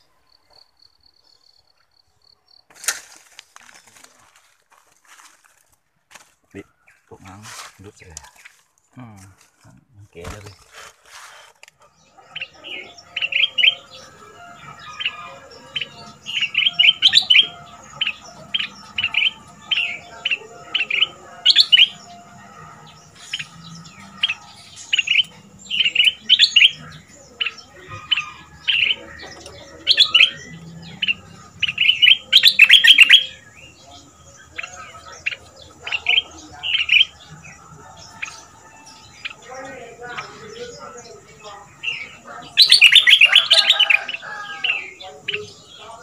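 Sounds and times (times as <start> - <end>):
bird singing chirpy phrases: 11.8 - 46.0.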